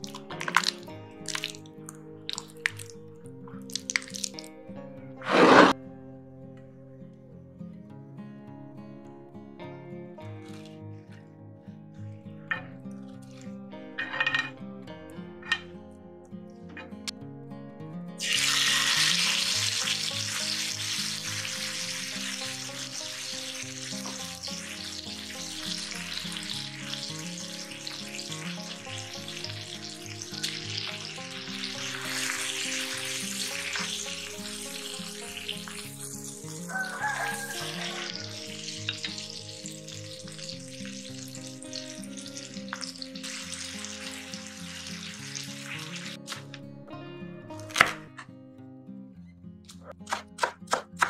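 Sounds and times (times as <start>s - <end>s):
chicken sizzling in hot oil: 0.0s - 1.6s, 3.7s - 4.5s, 18.2s - 46.5s
background music: 0.0s - 51.0s.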